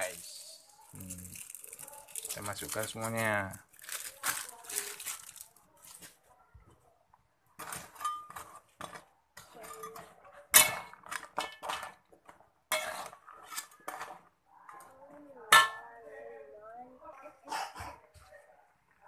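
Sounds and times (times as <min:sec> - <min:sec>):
metal spatula scraping wok: 0:07.6 - 0:12.0, 0:12.7 - 0:14.9.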